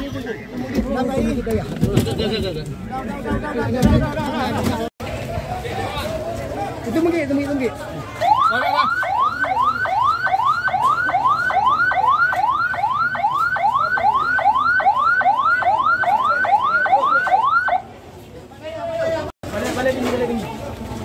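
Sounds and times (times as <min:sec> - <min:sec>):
ambulance siren yelping: 0:08.2 - 0:17.8.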